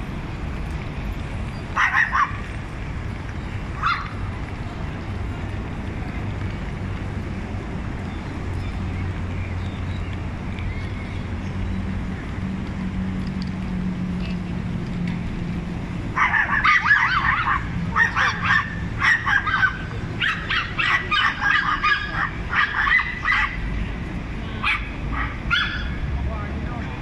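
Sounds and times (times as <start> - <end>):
small dogs yapping: 1.8 - 2.5, 3.8 - 4.2, 16.2 - 23.6, 24.6 - 26.0.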